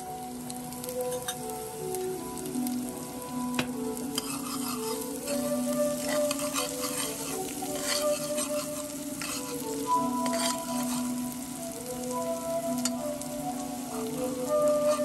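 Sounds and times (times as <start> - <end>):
onions sizzling in hot oil: 0.0 - 15.0
soft background music: 0.0 - 15.0
metal spoon scraping a pot: 4.1 - 11.2, 14.6 - 15.0.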